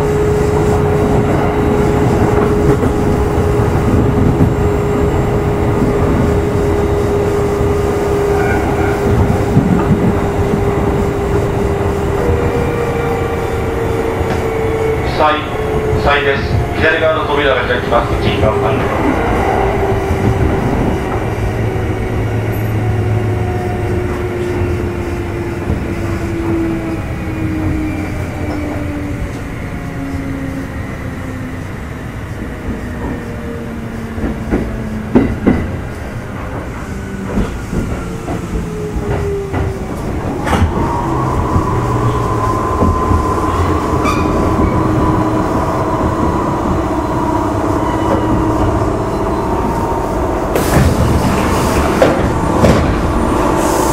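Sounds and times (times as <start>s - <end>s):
train wheels rumbling on rails: 0.0s - 53.9s
rail-joint clacks: 32.6s - 53.9s.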